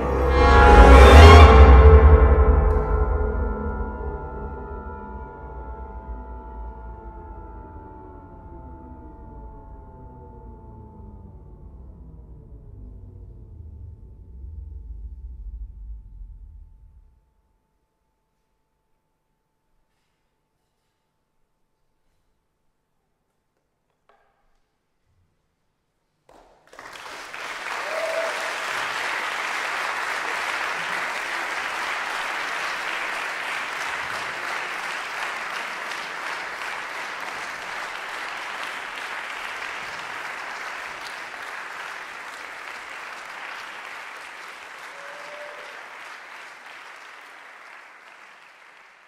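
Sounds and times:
audience applauding: 26.3s - 49.0s.

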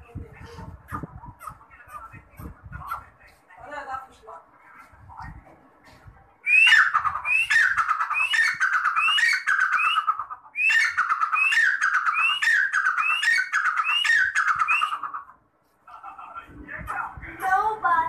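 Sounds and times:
francolin calling: 6.5s - 15.3s.

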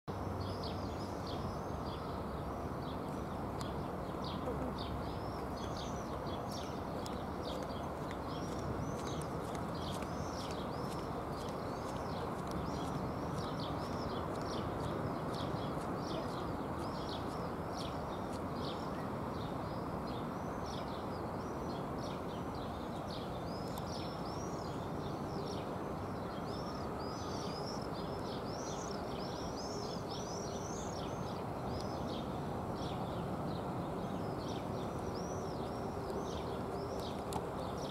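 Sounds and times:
small birds chirping: 0.1s - 37.9s.

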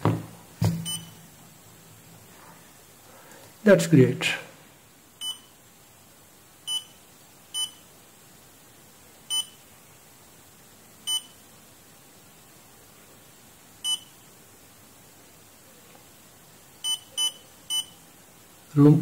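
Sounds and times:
thermostat short beeps: 0.8s - 1.2s, 5.2s - 5.6s, 6.7s - 7.0s, 7.6s - 7.8s, 9.3s - 9.6s, 13.9s - 14.1s, 16.8s - 18.0s.

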